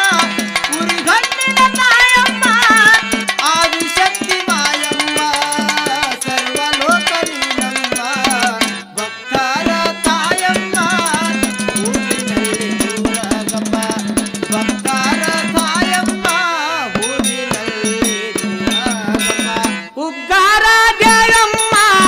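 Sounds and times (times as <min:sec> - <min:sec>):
quick even drumming: 0:00.0 - 0:08.9, 0:09.6 - 0:16.4
sliding melody line: 0:00.0 - 0:22.0.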